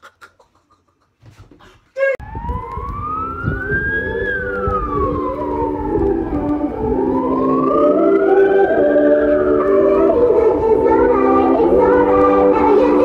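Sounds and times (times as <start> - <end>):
low chords and beat: 2.2 - 8.8
siren-like sweeping tone: 2.2 - 11.9.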